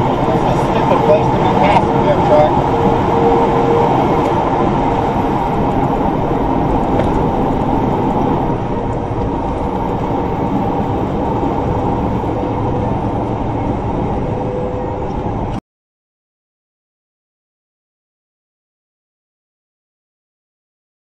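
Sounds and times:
truck engine and road noise: 0:00.0 - 0:15.6.

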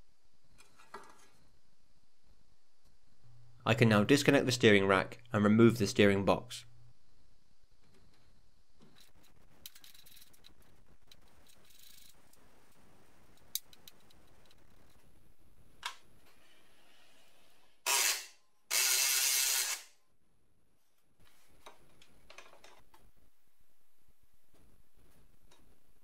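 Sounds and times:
loud mechanical tool bursts: 0:17.8 - 0:19.9.

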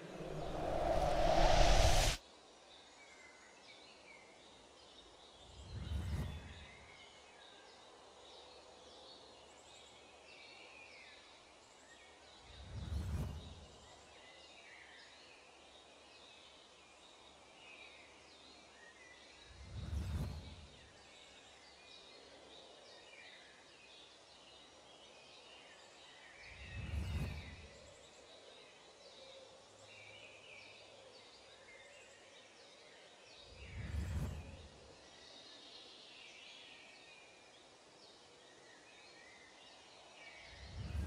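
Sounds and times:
soft whooshes: 0:00.0 - 0:02.2, 0:33.6 - 0:34.8, 0:40.6 - 0:41.0.

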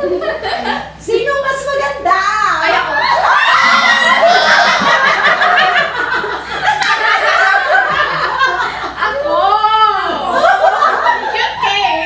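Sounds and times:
women and girls laughing: 0:03.0 - 0:12.0.

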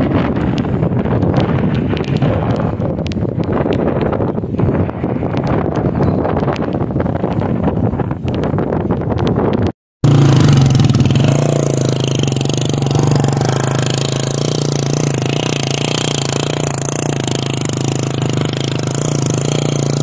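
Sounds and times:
motorcycle engine idling: 0:10.0 - 0:20.0.

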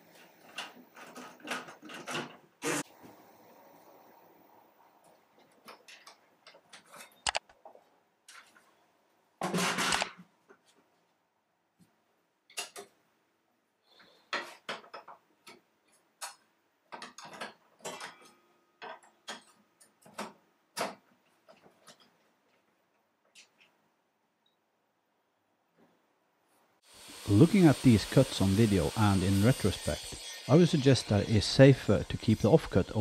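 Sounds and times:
loud scrape: 0:02.6 - 0:03.0.

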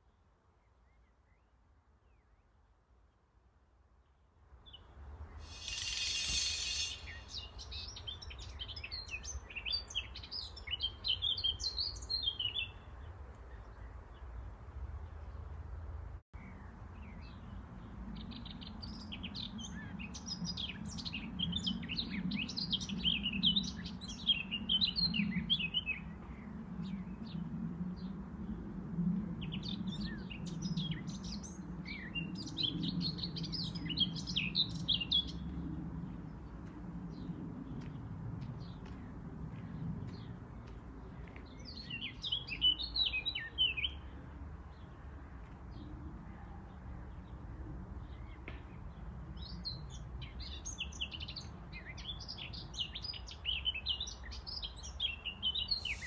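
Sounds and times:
small birds chirping: 0:04.7 - 0:12.8, 0:49.7 - 0:56.0.

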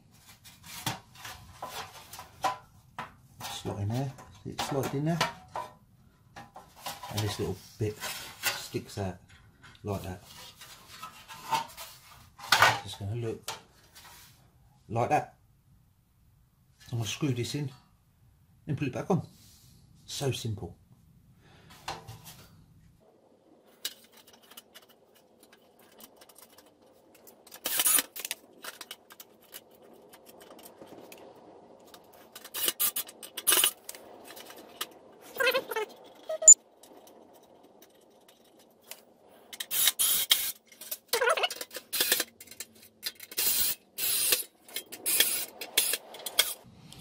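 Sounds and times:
metal clinks and scrapes: 0:31.9 - 0:46.7.

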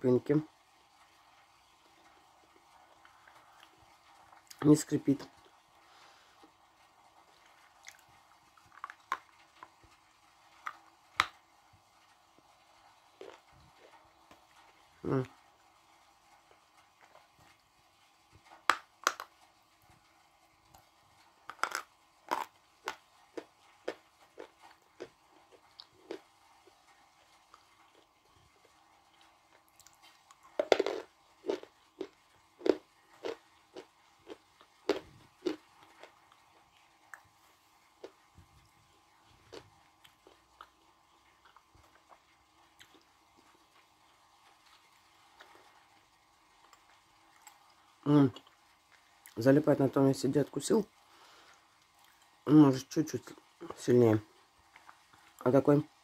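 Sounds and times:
chewing crunches: 0:07.3 - 0:11.4, 0:13.1 - 0:14.7, 0:21.4 - 0:49.4
wet mouth chewing clicks: 0:29.8 - 0:37.3, 0:39.5 - 0:40.8.

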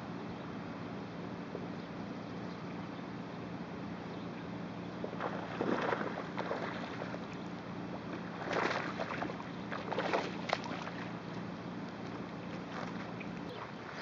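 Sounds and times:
low steady hum: 0:00.0 - 0:14.0
water splashing: 0:05.1 - 0:07.4, 0:08.2 - 0:11.2.

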